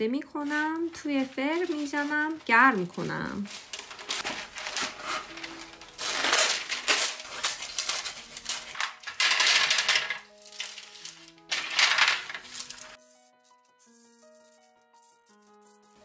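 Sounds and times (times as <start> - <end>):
background music: 0.0 - 16.0
baking stones rattling on metal tray: 8.7 - 13.0.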